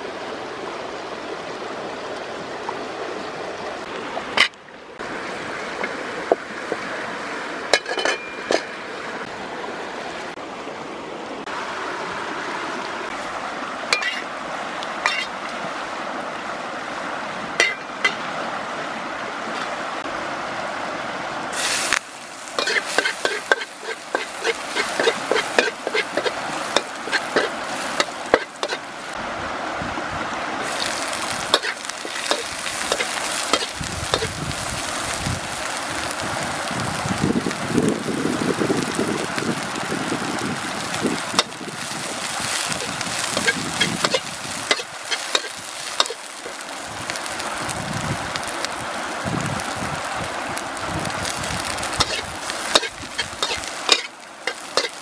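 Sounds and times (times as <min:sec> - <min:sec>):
metal ladle scraping a wok: 0:07.7 - 0:08.8, 0:13.9 - 0:14.3, 0:15.0 - 0:15.3, 0:17.6 - 0:18.2, 0:22.6 - 0:28.9, 0:30.6 - 0:34.4, 0:41.4 - 0:46.6, 0:52.0 - 0:55.0
garlic sizzling in oil: 0:13.9 - 0:14.3, 0:15.0 - 0:15.3, 0:17.6 - 0:18.2, 0:21.5 - 0:29.2, 0:30.6 - 0:55.0
wood fire crackling: 0:21.5 - 0:29.2, 0:30.6 - 0:55.0.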